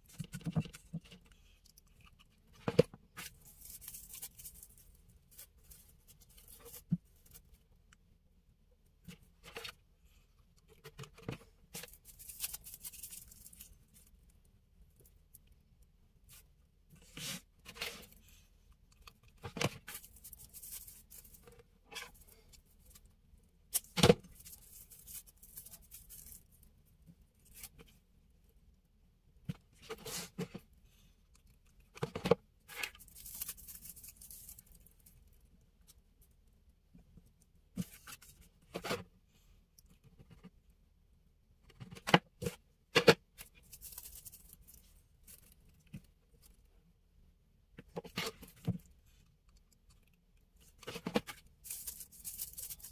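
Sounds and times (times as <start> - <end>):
raffia rustling and crinkling: 2.8 - 7.4, 19.5 - 23.0, 23.8 - 26.6, 32.6 - 35.2, 43.4 - 46.5, 50.7 - 52.9.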